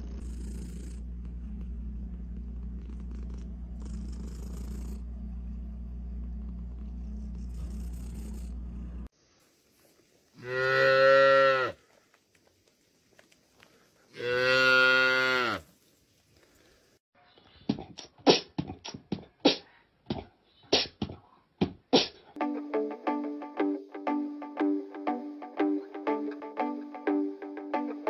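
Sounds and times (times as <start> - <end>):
cow mooing: 10.4 - 11.8, 14.2 - 15.6.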